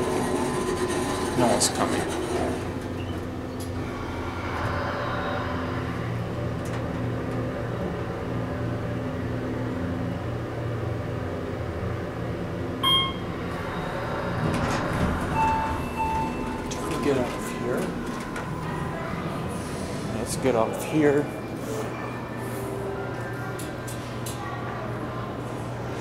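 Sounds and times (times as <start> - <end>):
elevator hum: 0.0 - 26.0
short electronic chime: 12.8 - 13.3.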